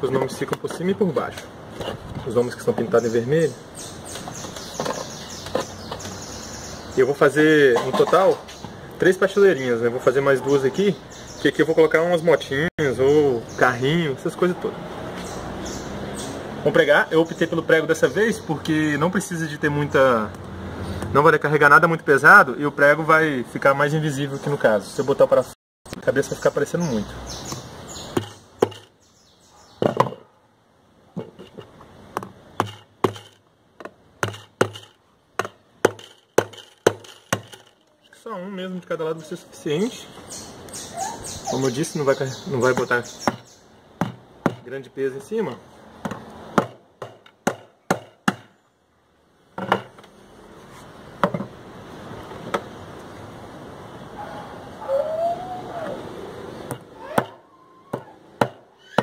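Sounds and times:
hammer striking nail: 0:34.2 - 0:37.7, 0:46.1 - 0:48.5.

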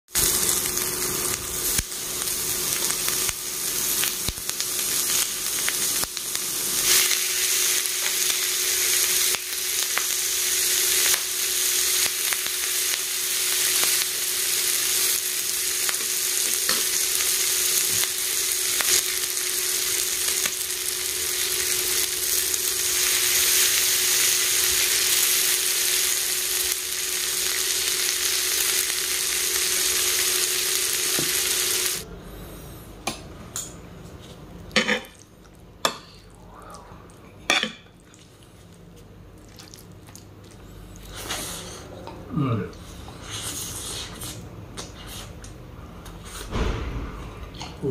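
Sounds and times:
food sizzling on hot plate: 0:00.1 - 0:32.0.

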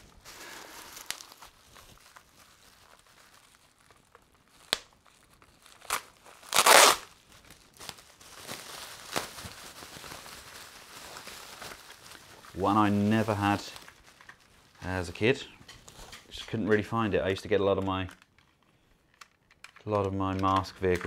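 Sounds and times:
bubble wrap crinkling: 0:00.0 - 0:16.4.

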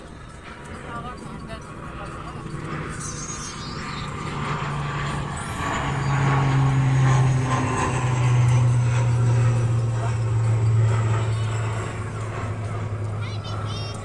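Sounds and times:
engine humming: 0:00.0 - 0:14.0.

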